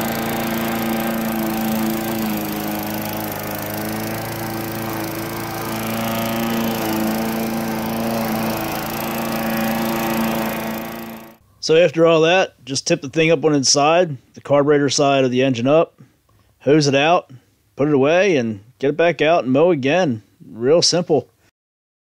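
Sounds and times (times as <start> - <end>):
lawn mower engine running: 0.0 - 11.4.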